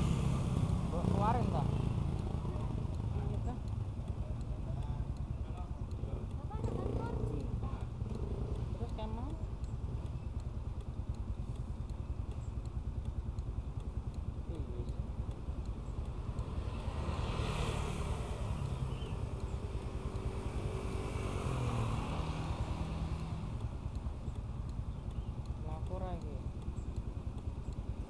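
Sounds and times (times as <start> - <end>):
vehicle passing: 0.0 - 3.7, 14.6 - 24.9
motorcycle engine idling: 0.0 - 28.0.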